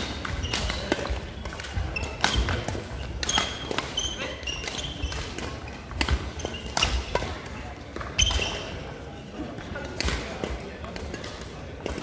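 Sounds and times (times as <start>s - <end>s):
rackets striking shuttlecock: 0.0s - 9.0s
shoes squeaking on wooden floor: 6.4s - 6.9s.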